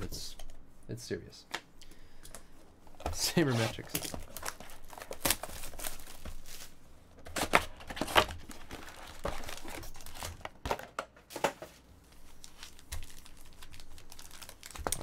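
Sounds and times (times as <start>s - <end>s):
foil card packs crinkling: 3.0s - 11.4s, 12.1s - 15.0s.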